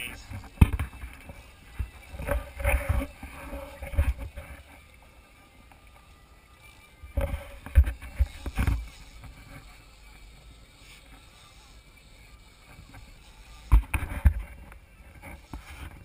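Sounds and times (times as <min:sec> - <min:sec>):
muffled thumps on camera housing: 0:13.7 - 0:14.4.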